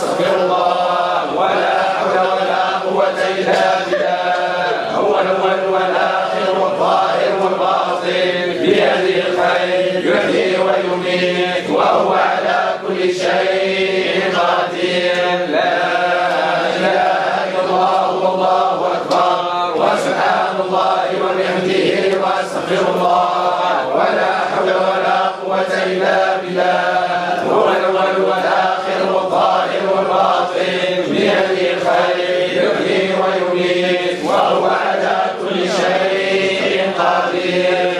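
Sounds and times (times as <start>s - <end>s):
men chanting together: 0.0s - 37.9s.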